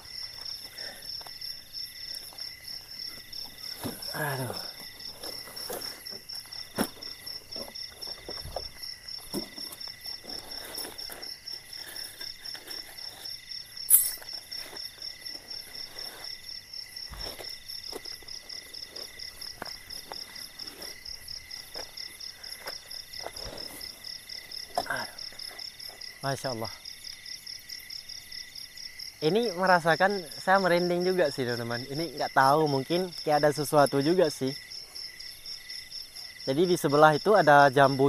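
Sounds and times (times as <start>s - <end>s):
tent bag rustling: 0.0s - 26.2s
night insects trilling: 0.0s - 38.0s.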